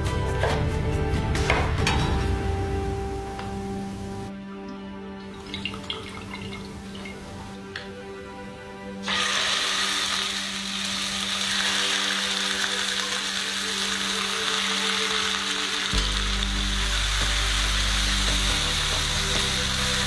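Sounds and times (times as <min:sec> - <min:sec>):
meat sizzling in a skillet: 0:09.0 - 0:20.0.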